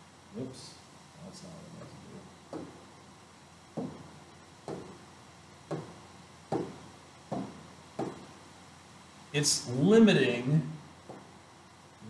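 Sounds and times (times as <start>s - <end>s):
dull knocks: 2.5s - 2.9s, 3.7s - 5.0s, 5.6s - 8.4s, 11.0s - 11.3s.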